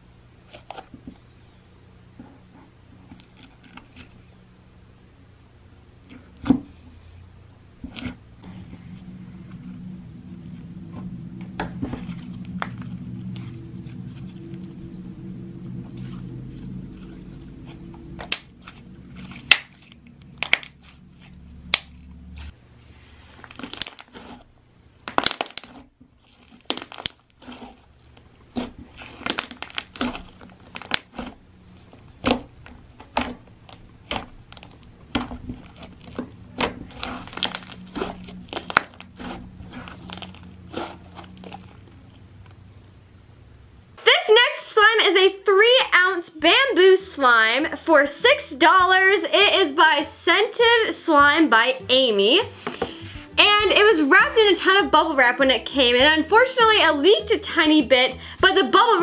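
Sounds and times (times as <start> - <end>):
sticky crackle of slime: 23.3 - 31.4, 32.2 - 42.2.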